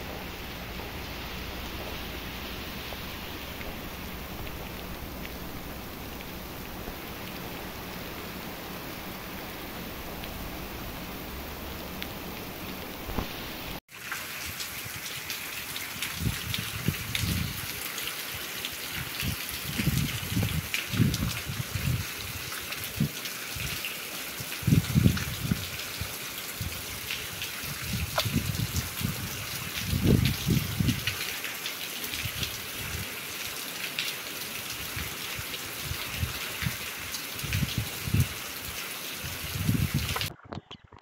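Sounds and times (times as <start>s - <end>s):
low irregular rumbles: 0.0s - 13.8s
heavy rain: 0.0s - 40.3s
running water: 0.0s - 40.4s.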